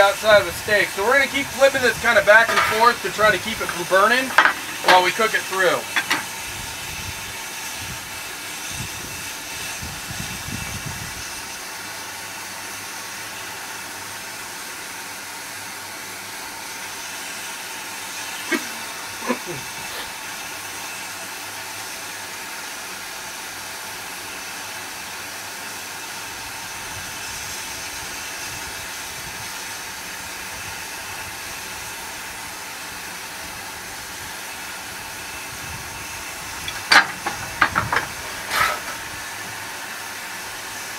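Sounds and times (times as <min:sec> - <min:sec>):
steam and fire hissing: 0:00.0 - 0:40.9.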